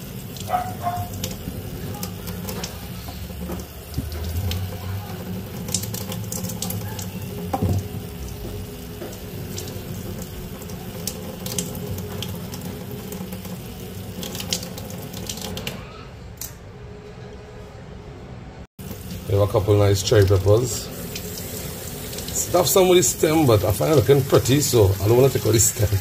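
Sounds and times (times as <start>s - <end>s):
tap running into a sink: 0.3s - 15.7s.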